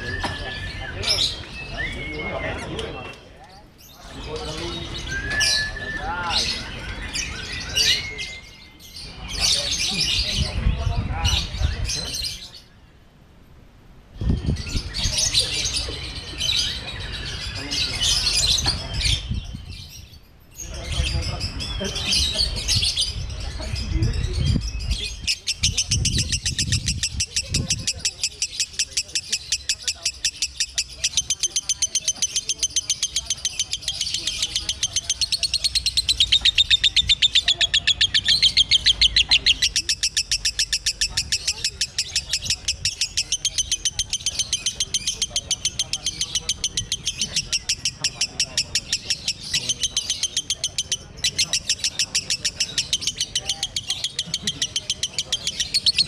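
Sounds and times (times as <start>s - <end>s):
bird chirping rapidly: 23.9s - 56.0s
lovebird chattering trill: 24.5s - 56.0s.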